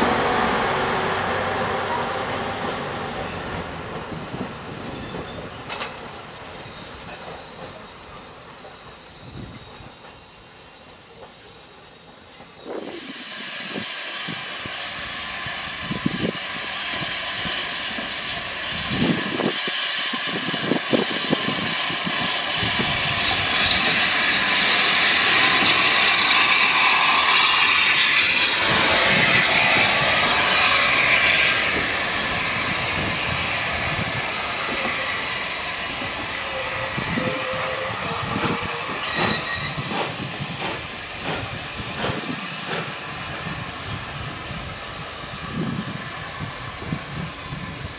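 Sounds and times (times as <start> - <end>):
steam locomotive passing: 0.0 - 47.9
train wheels clattering on rails: 1.5 - 14.5, 15.9 - 43.7
high wheel squeal: 6.5 - 42.9.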